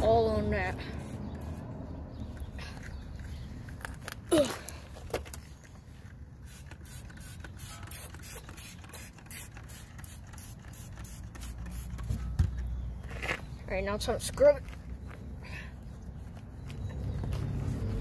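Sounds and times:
spray bottle squirting: 6.4s - 12.2s.

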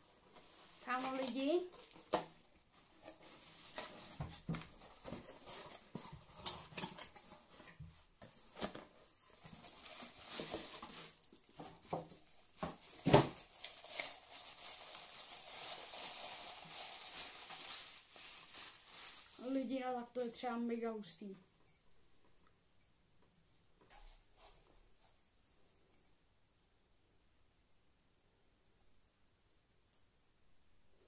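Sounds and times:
plastic bag crinkling: 0.2s - 7.7s, 8.5s - 20.4s.

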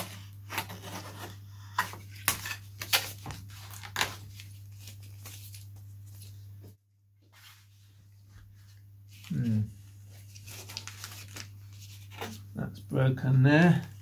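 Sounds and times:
covering being peeled and torn: 2.1s - 5.8s, 10.2s - 12.1s.

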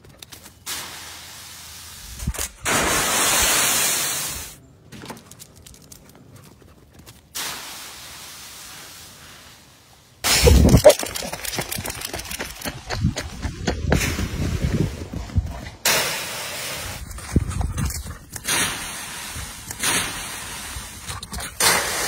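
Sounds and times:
wind buffeting microphone: 11.6s - 15.8s.

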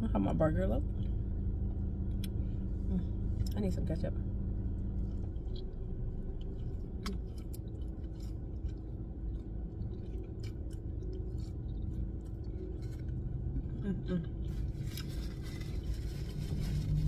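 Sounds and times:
steady low rumble: 0.0s - 17.0s
person chewing food: 4.7s - 16.2s.

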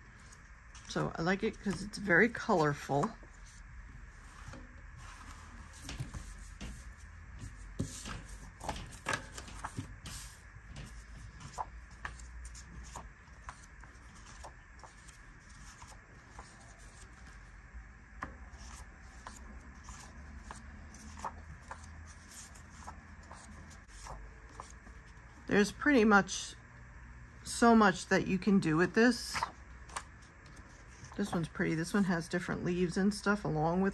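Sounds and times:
faint steady hum: 0.0s - 33.9s
paper rustling: 0.1s - 17.4s, 18.5s - 25.2s
paper tapping on a desk: 4.4s - 13.7s.

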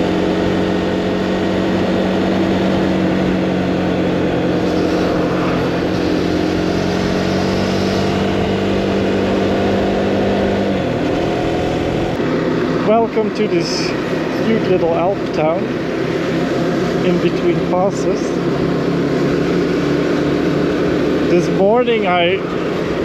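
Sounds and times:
motorcycle engine running: 0.0s - 23.0s
wind rushing past microphone: 2.6s - 12.2s.

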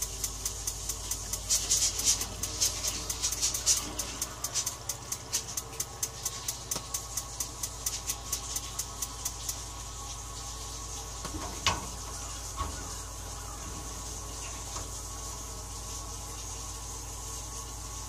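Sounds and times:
spark igniter clicking: 0.0s - 9.8s
steady hiss: 0.0s - 18.0s.

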